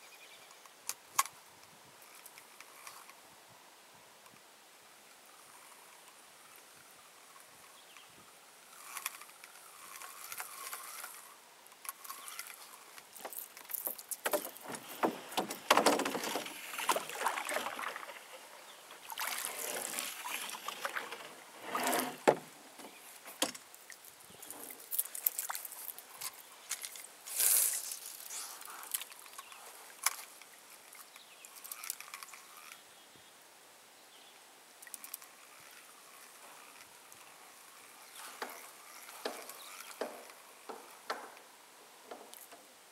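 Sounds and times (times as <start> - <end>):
paddle strokes splashing water: 14.2 - 23.0.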